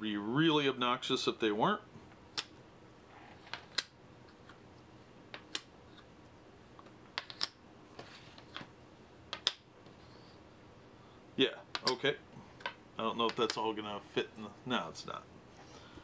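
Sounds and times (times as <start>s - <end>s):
plastic chips clicking: 7.2s - 7.6s.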